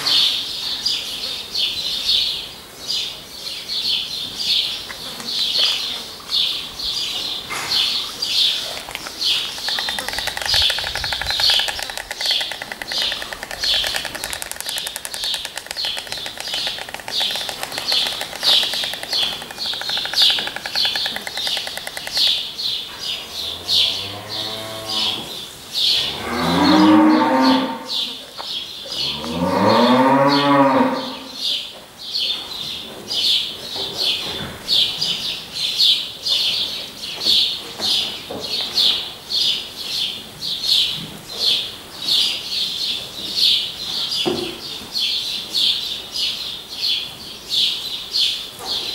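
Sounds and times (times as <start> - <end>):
high chirps: 8.2 - 22.8
cow mooing: 23.2 - 25.4, 26.0 - 27.9, 29.0 - 31.3.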